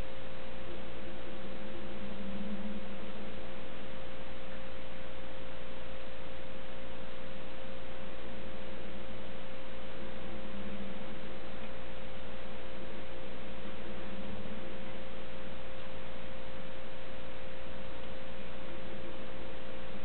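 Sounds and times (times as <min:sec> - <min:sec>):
electrical hum: 0:00.0 - 0:20.0
steady hiss: 0:00.0 - 0:20.0.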